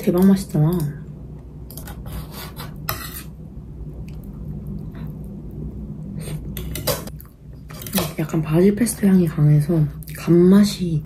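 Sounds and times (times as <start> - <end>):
knife scraping toast on plate: 1.8 - 3.4
person chewing: 6.3 - 7.5.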